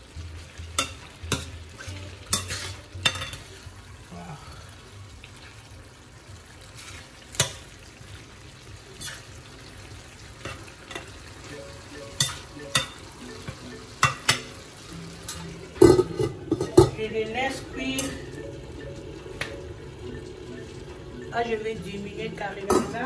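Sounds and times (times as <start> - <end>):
stew sizzling: 0.0 - 23.0
metal spatula scraping pan: 0.8 - 3.5, 9.0 - 9.3.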